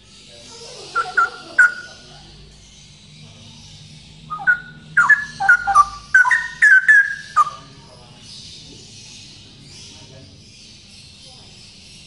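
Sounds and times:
bird singing whistled notes: 4.2 - 7.7.

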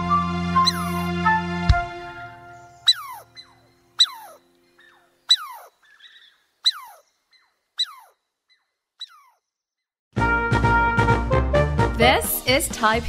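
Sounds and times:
high animal squeaks: 0.6 - 1.1, 2.8 - 9.4.

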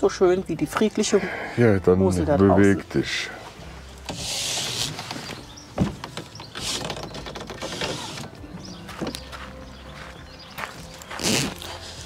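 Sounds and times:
footsteps on gravel: 8.4 - 12.0.

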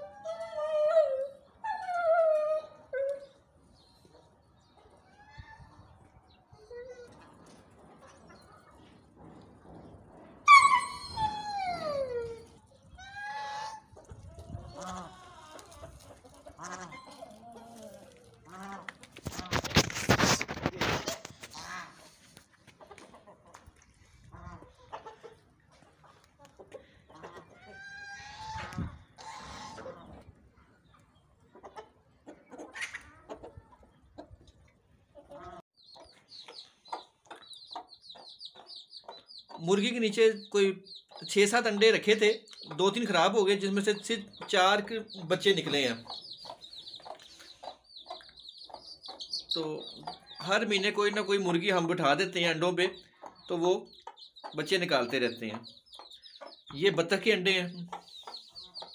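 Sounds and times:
chickens clucking: 3.3 - 11.3, 12.4 - 58.9
chicks peeping: 12.5 - 58.9
drawn-out animal cry: 16.5 - 17.9.

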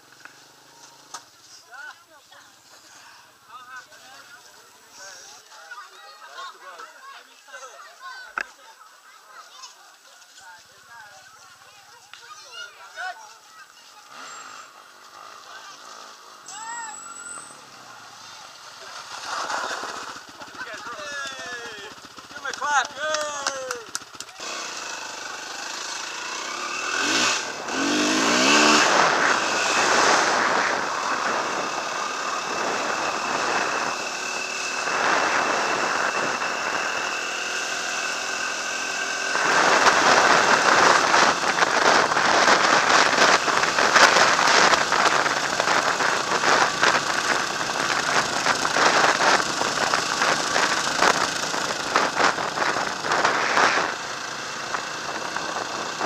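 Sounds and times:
rumble of riding on dirt road: 0.0 - 7.2, 7.9 - 56.0
dirt bike engine revving: 14.1 - 56.0
wind buffeting microphone: 39.3 - 56.0.

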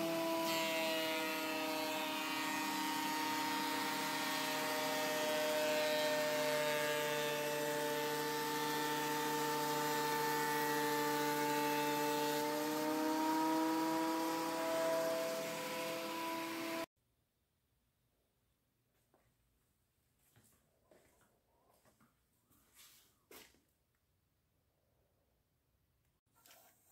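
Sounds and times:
thickness planer motor whine: 0.0 - 16.9.

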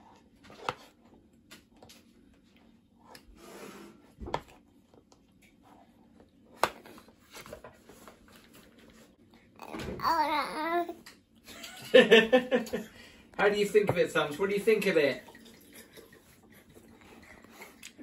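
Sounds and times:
soft rubbing and rustling: 7.0 - 9.3.

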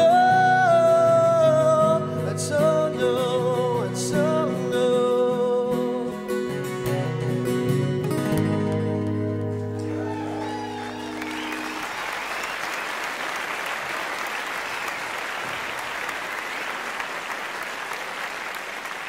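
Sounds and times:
audience applauding: 9.6 - 19.0.

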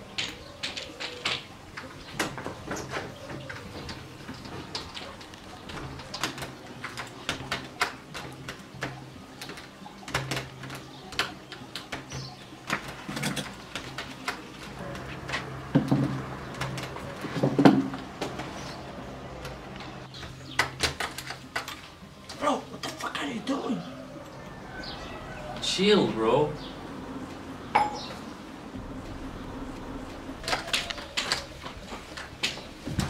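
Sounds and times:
hands clicking and knocking: 0.0 - 18.8, 19.4 - 22.4
steady low hum: 26.6 - 33.0.

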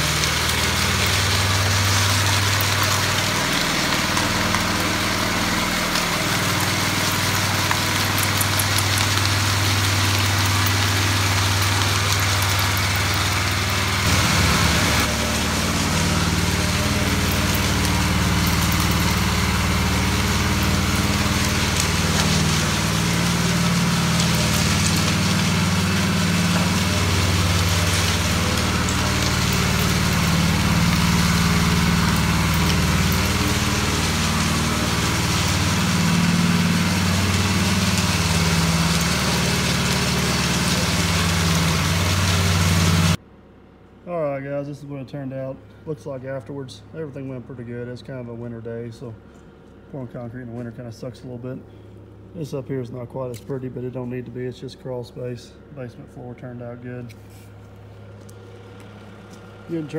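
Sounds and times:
concrete power trowel engine running: 0.0 - 43.2, 55.6 - 59.9.

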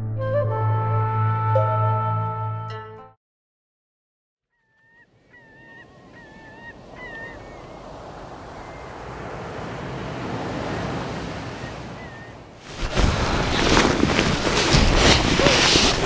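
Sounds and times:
honking bird calls: 4.5 - 12.5
wind: 4.6 - 16.0
sea noise: 5.0 - 16.0.

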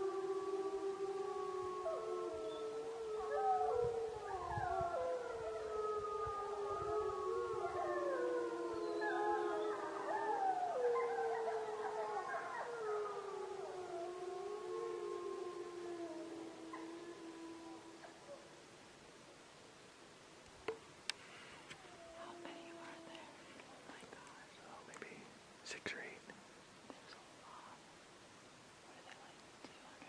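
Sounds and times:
wolves howling in chorus: 0.0 - 18.5, 21.8 - 23.4.

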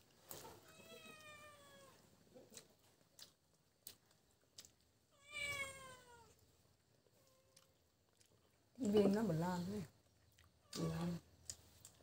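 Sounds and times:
soft chewing: 0.0 - 1.2, 1.8 - 12.0
cat meowing: 0.7 - 2.0, 5.1 - 6.4.

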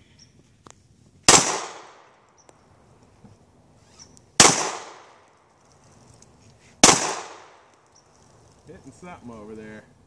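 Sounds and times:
pistol shot: 1.3 - 2.2, 4.4 - 5.2, 6.8 - 7.7.

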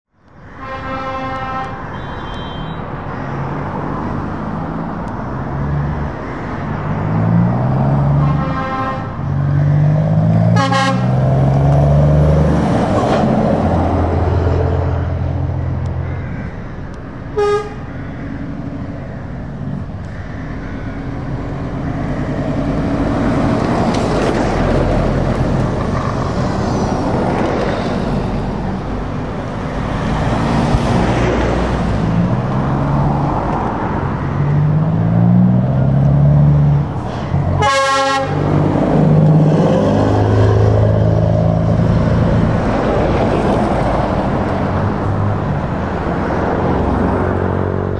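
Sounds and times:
truck engine and tyre noise: 0.1 - 47.9
truck air horn blasts: 0.6 - 2.9, 8.1 - 9.2, 10.5 - 11.2, 17.4 - 17.9, 37.6 - 38.5
truck engine accelerating: 21.1 - 47.9.

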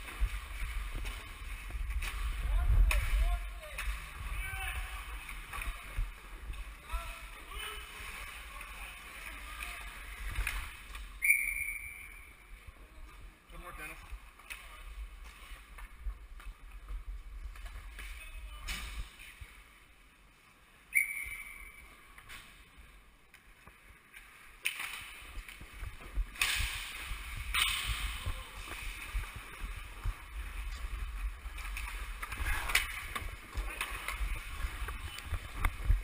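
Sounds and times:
clacks of sticks and puck: 23.4 - 29.4, 31.6 - 36.0.

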